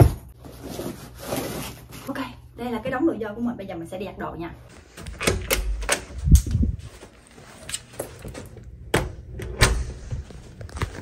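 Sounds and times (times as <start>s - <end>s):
door latch clicks and knocks: 5.0s - 6.2s.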